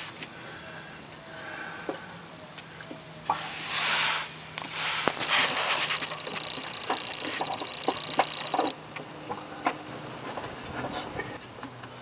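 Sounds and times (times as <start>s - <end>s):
fast small clicks: 5.1s - 8.8s.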